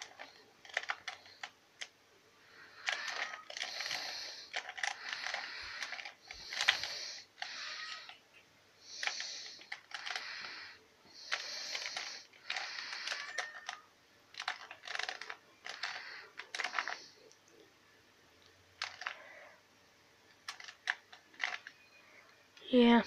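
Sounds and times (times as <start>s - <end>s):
puzzle cube layers clicking: 0.0s - 2.0s, 2.8s - 8.2s, 9.0s - 10.2s, 11.3s - 17.6s, 20.4s - 21.7s.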